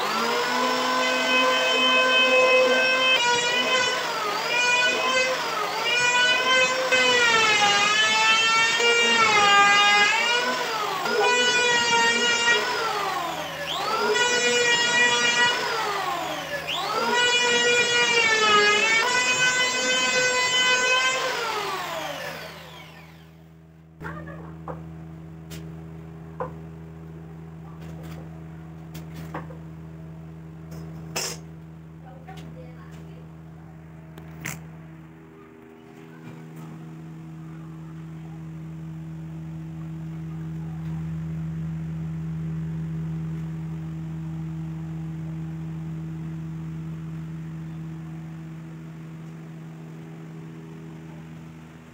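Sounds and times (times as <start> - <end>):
low electrical hum: 0.0 - 51.9
faint higher tone: 35.2 - 50.2.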